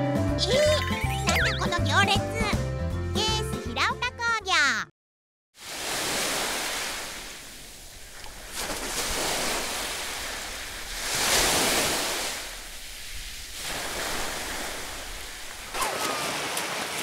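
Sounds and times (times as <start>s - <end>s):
small waves washing on shore: 5.6s - 17.0s.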